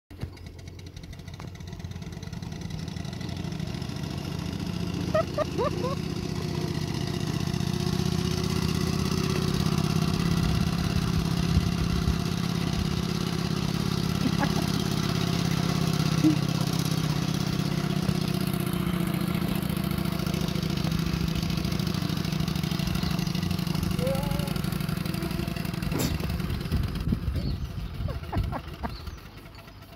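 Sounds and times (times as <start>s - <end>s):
mechanical clatter of wheels: 28.4s - 29.9s.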